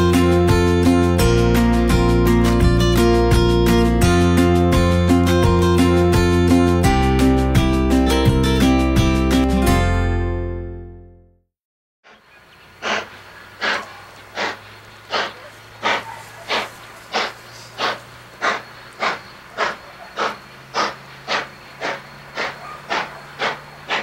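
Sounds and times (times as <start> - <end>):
steam locomotive chuffing: 12.8 - 24.0.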